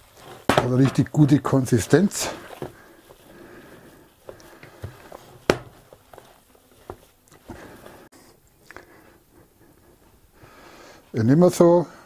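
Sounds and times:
dough squishing: 0.0s - 8.1s.

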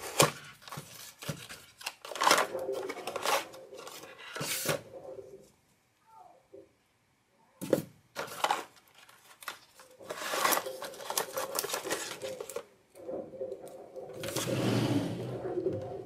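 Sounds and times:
rustling and scraping of packaging: 0.0s - 4.9s, 7.6s - 12.7s, 14.1s - 15.4s.

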